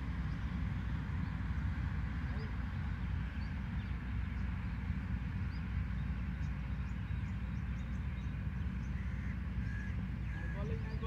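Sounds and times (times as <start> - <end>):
faint bird chirps: 5.4 - 11.0.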